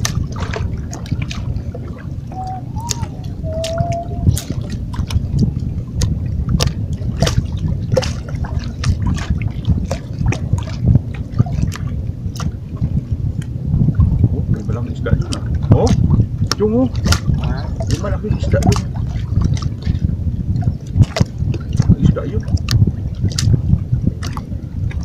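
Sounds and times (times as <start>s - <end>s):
water splashing against rocks: 0.0s - 12.9s, 15.2s - 25.0s
short whistle-like tones: 2.3s - 4.4s.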